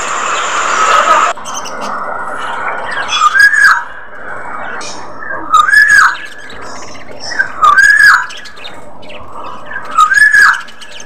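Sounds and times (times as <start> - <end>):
bird squawking: 4.7 - 8.7, 9.5 - 11.0.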